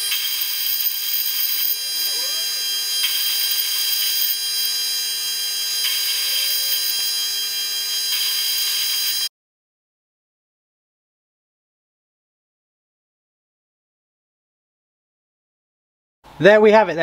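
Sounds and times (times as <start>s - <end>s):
lathe motor and gear whine: 0.0s - 9.3s
tool cutting hiss: 0.0s - 9.3s.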